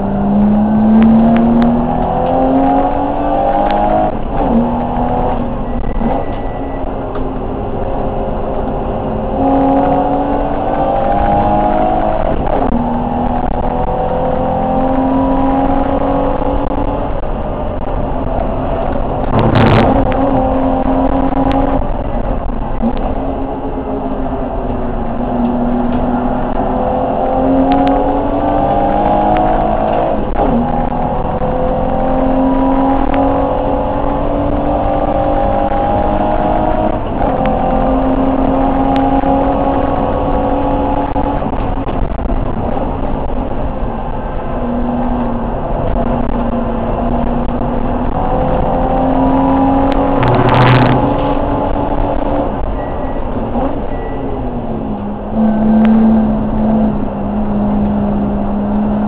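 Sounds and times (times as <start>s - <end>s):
race car engine revving: 0.0s - 59.0s
loud bang with low thump: 19.3s - 20.2s.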